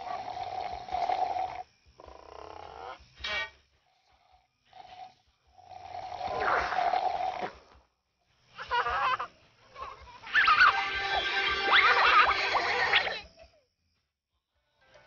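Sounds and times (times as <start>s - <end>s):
children slurping through straws: 6.1s - 7.8s.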